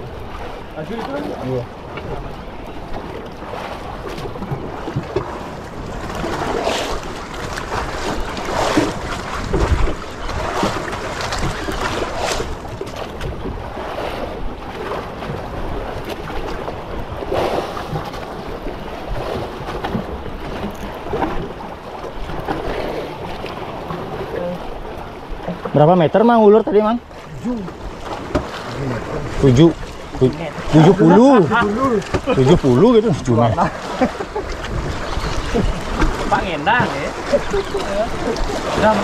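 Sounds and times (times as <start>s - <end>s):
wind on microphone: 0.0s - 25.5s, 34.1s - 39.0s
sea waves: 0.0s - 39.0s.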